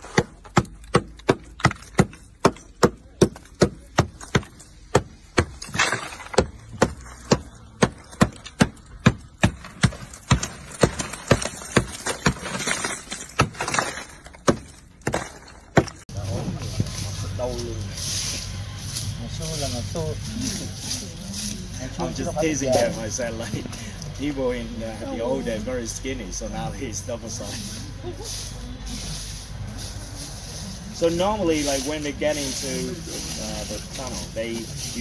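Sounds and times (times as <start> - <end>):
hammer knocking ice: 0.0 - 16.0
ice crunching and breaking: 5.5 - 7.3, 9.4 - 16.0.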